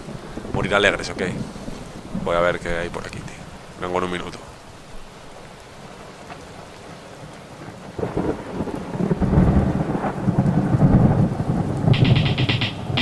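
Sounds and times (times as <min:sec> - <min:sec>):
rain-like hiss: 0:00.0 - 0:13.0
low rumbling thunder-like noise: 0:08.0 - 0:13.0
short higher patterned sound: 0:12.0 - 0:13.0.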